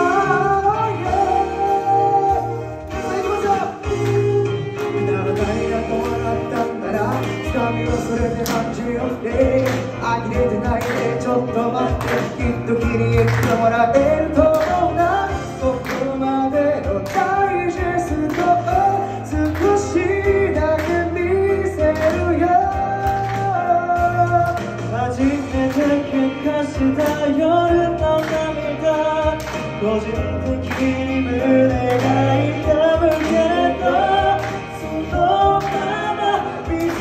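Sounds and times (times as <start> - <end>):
instrumental accompaniment with beat: 0.0 - 37.0
man singing pop ballad: 0.0 - 37.0.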